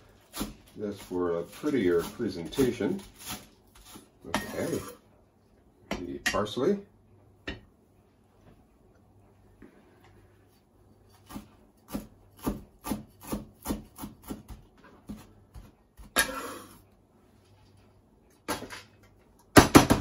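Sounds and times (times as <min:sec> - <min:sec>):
knife scraping cutting board: 0:00.2 - 0:05.0
knife chopping on cutting board: 0:00.3 - 0:05.0, 0:11.1 - 0:16.2.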